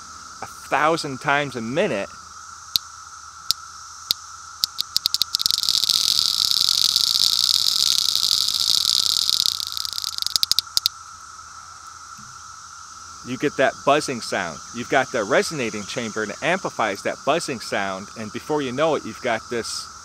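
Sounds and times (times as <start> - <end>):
tin clicker toy clicking: 4.6 - 10.9.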